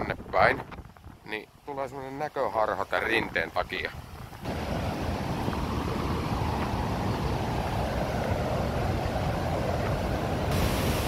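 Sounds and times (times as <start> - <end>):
waterfall rushing: 4.4 - 11.0.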